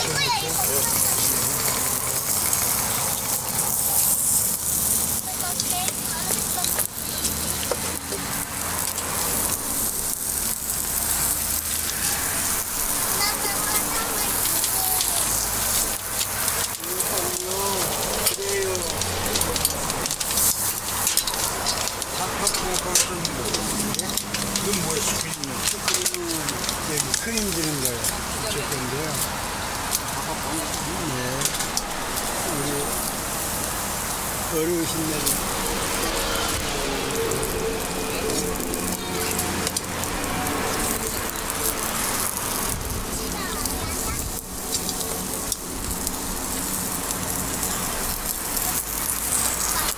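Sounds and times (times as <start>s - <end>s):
batter sizzling in molds: 0.0s - 49.9s.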